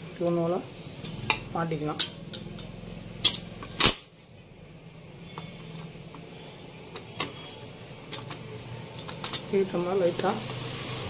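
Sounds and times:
metal gear parts clinking: 2.0 - 4.1.

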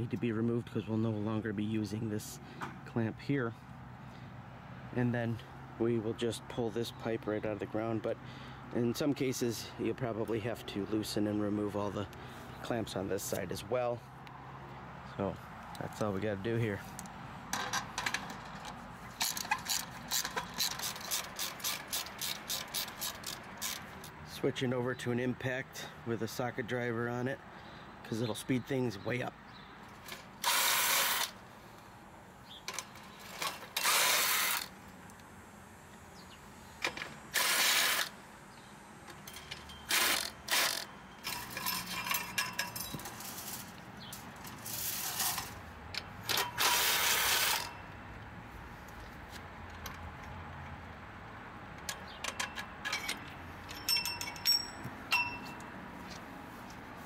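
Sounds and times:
impact driver bursts: 30.3 - 31.4, 33.5 - 34.8, 36.9 - 38.2, 39.8 - 40.9, 46.3 - 47.8
light metal clinks: 41.2 - 44.2, 52.0 - 55.7.

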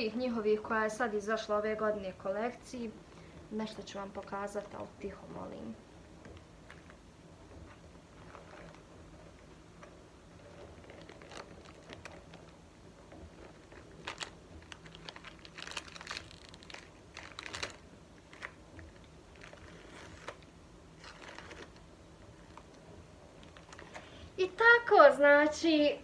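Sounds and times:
wrappers crinkling: 7.6 - 24.6.

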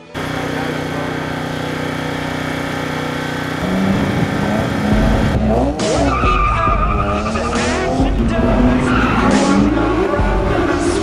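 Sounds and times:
race car engine revving: 0.1 - 11.0
tyres squealing: 5.5 - 10.9.

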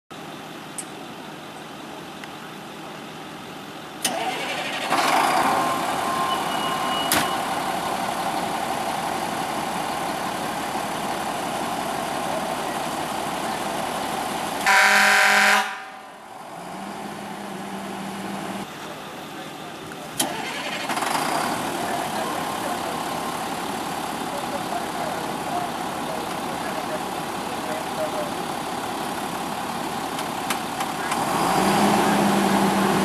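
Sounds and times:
air horn blast: 14.6 - 16.2.

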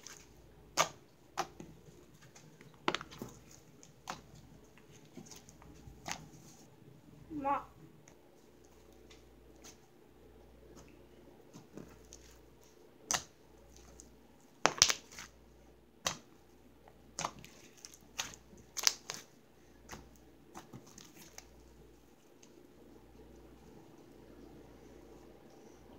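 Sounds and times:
hands squishing slime: 0.0 - 6.7, 10.6 - 24.4.

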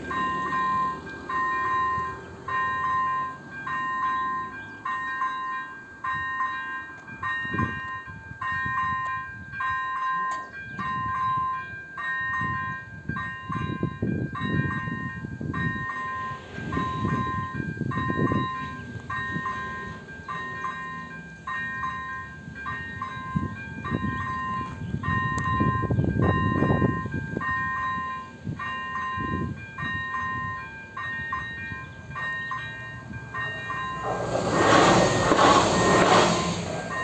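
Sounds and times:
level crossing warning bell: 0.0 - 37.0
low rumbling noise: 34.0 - 37.0.

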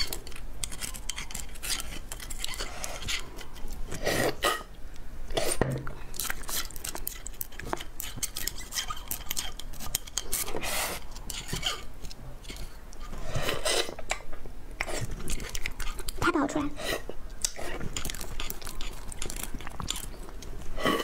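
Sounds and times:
sticky mouth clicks and smacks: 14.0 - 16.3, 17.3 - 20.6.

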